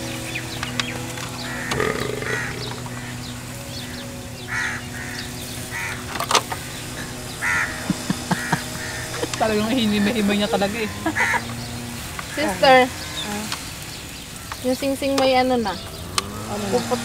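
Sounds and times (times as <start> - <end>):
crows cawing: 1.6 - 3.2, 4.5 - 6.1, 6.9 - 11.5.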